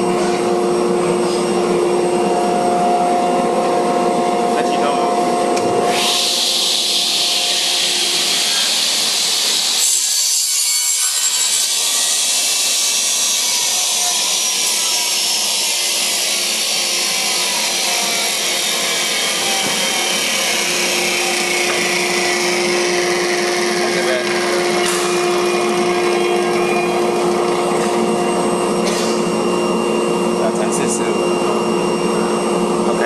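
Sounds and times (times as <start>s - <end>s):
panel saw humming: 0.0s - 33.0s
saw blade cutting wood: 5.9s - 29.3s.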